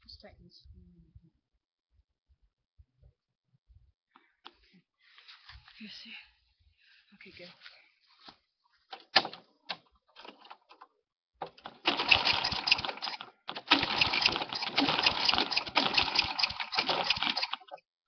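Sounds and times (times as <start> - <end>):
sharp clicks: 9.0 - 17.8
lawn mower engine running: 11.4 - 17.8.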